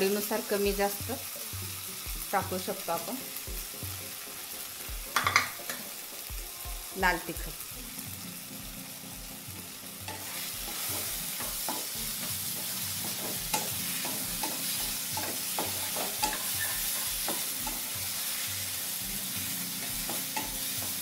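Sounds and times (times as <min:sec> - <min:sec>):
frying sizzle: 0:00.0 - 0:21.0
spatula tapping against pan: 0:05.1 - 0:06.3, 0:10.1 - 0:17.9, 0:20.0 - 0:21.0
spatula scraping a pan: 0:10.1 - 0:21.0.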